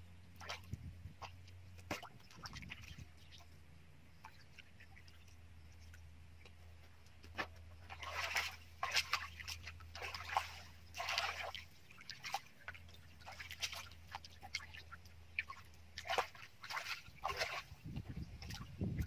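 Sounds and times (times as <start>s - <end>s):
hands splashing in muddy water: 7.3s - 19.0s.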